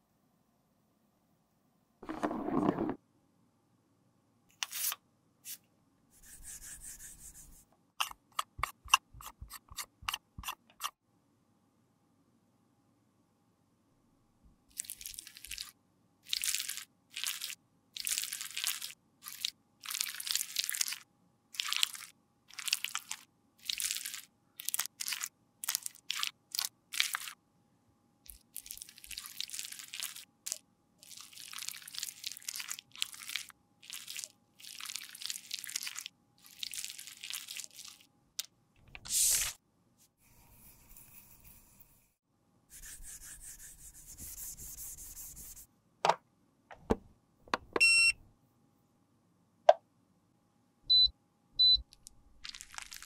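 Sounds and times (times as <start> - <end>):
spatula scraping in plastic pot: 2.0 - 3.0
short beeps: 47.8 - 48.2, 50.9 - 51.9.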